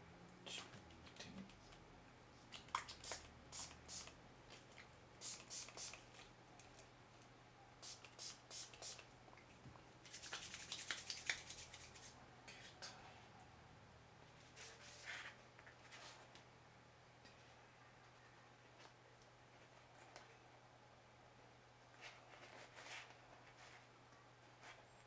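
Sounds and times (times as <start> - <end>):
wet fingers rubbing together: 10.1 - 12.1.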